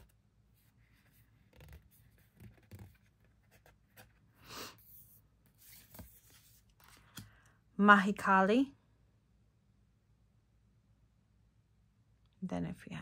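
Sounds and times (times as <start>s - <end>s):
cards sliding and rustling: 0.0s - 7.3s.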